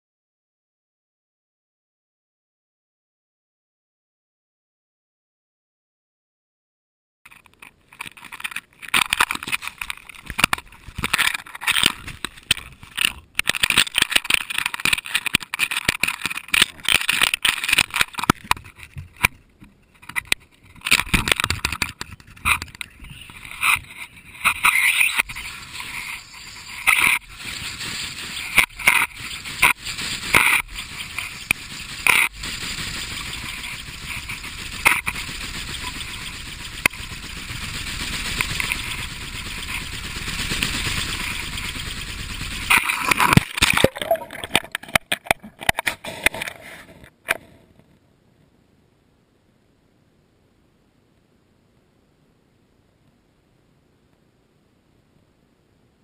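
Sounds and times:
rough steady rush: 7.3s - 46.9s.

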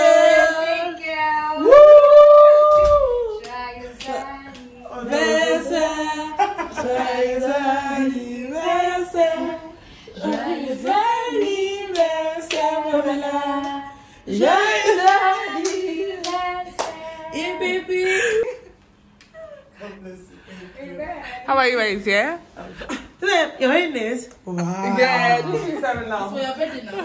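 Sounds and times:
women singing together: 0.0s - 18.8s
hand claps: 2.1s - 4.7s, 11.4s - 12.8s, 15.0s - 17.0s.

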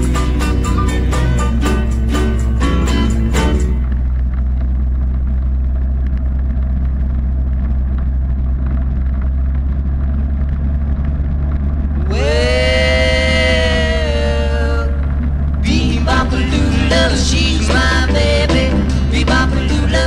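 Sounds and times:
gliding musical note: 0.0s - 4.0s.

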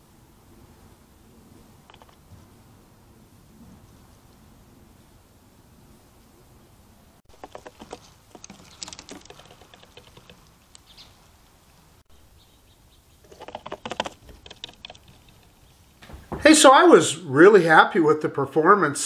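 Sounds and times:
small clicks and scratchy patter: 1.8s - 2.5s, 7.3s - 11.2s, 13.2s - 16.2s.

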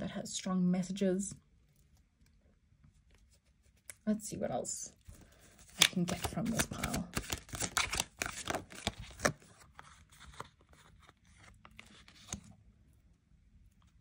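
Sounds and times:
cards being shuffled: 5.0s - 12.6s.

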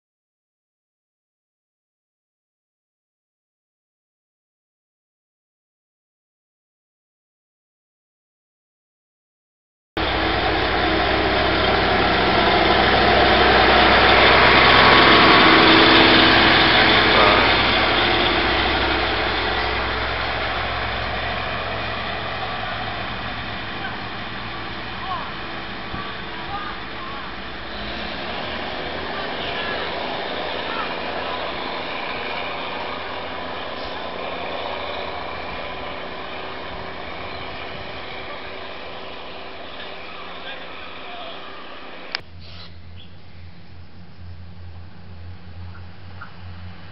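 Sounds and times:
diesel railcar engines running: 10.0s - 46.9s
steady low hum: 10.0s - 46.9s.

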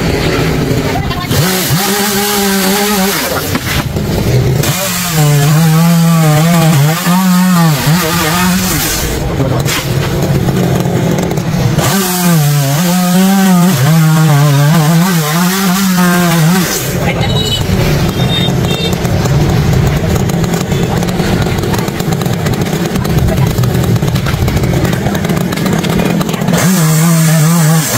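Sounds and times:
chainsaw cutting wood: 0.0s - 27.9s.

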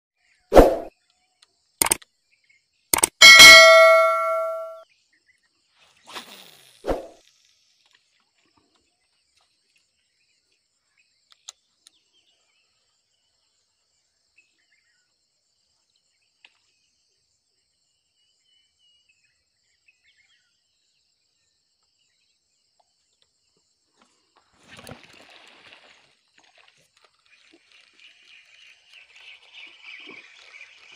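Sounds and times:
sharp clicks: 1.8s - 2.0s, 3.0s - 3.8s.

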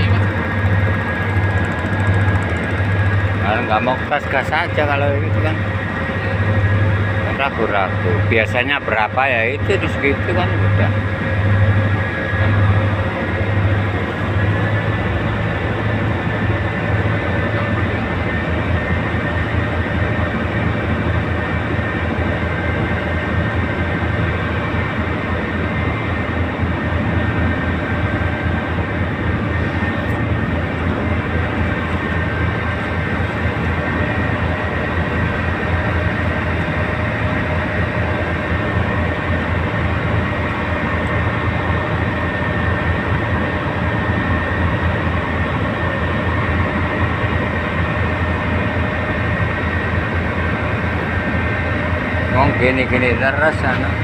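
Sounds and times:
diesel engine throbbing: 0.0s - 54.0s
faint steady whine: 0.0s - 54.0s.

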